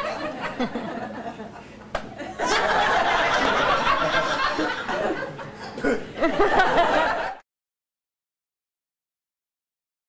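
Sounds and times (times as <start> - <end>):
audience laughing: 0.0 - 7.4.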